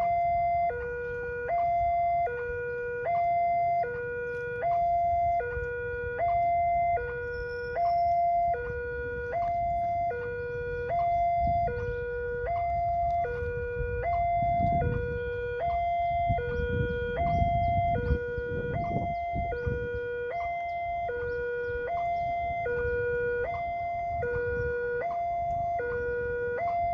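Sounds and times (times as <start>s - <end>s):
two-tone crossing alarm: 0.0s - 26.9s.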